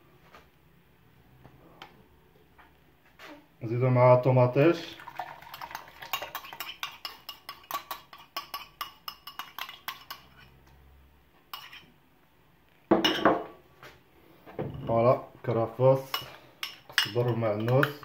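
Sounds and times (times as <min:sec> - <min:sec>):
spoon clinking against metal pot: 0:05.3 - 0:10.5, 0:11.5 - 0:11.8, 0:16.0 - 0:18.0.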